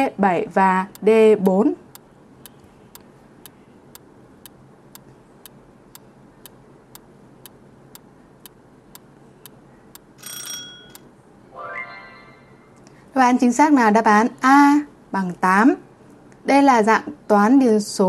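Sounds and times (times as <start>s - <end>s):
short bell ring: 10.2s - 11.0s.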